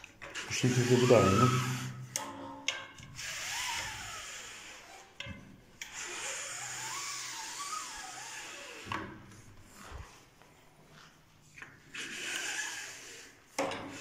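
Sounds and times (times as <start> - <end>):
fabric blind sliding: 0.3 - 2.0, 5.9 - 9.0, 11.8 - 14.0
thin wavering squeak: 0.6 - 2.0.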